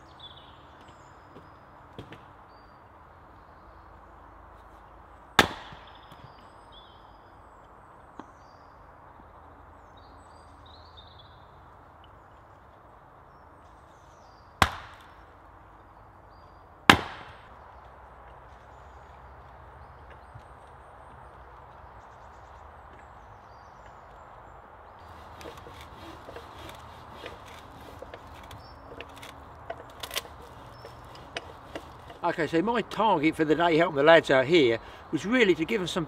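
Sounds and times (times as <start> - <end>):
axe chopping firewood: 5.4 - 6.2, 14.6 - 15.2, 16.9 - 17.6.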